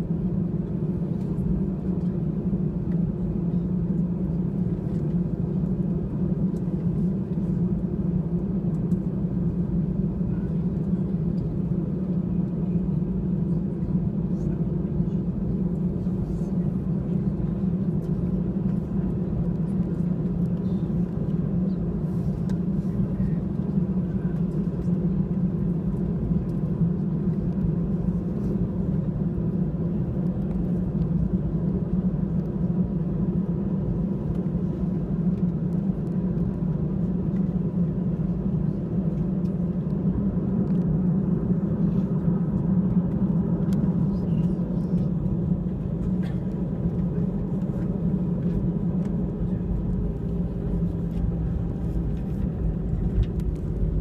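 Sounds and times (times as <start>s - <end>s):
jet engines idling hum: 0.0s - 54.0s.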